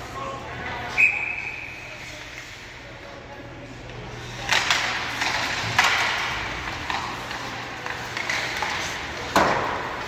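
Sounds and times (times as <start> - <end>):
hockey sticks and puck clacking: 1.7 - 2.9, 3.9 - 10.0.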